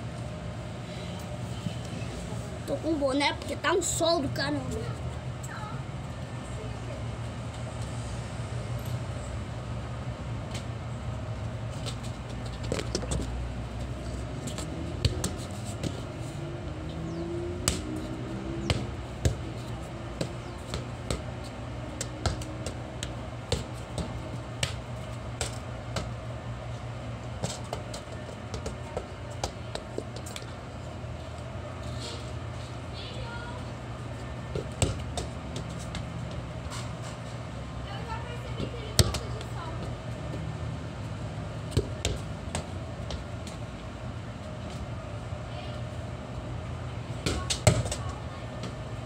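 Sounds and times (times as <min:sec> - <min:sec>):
low background hum: 0:00.0 - 0:49.0
football kicked and bouncing: 0:11.8 - 0:16.0, 0:17.6 - 0:24.8, 0:25.4 - 0:26.2, 0:27.4 - 0:30.4, 0:34.5 - 0:36.4, 0:38.6 - 0:39.5, 0:41.7 - 0:43.3, 0:47.2 - 0:48.8.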